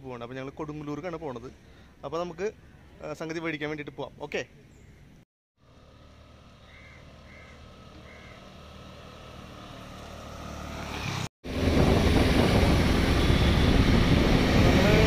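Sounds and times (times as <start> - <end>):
motor scooter engine: 5.6 - 15.0
wind rush on microphone: 11.5 - 15.0.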